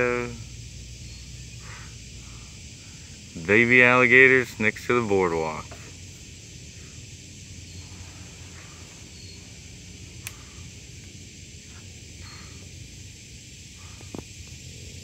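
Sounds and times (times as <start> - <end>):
insect chorus: 0.0 - 15.0
sharp click: 10.2 - 10.4.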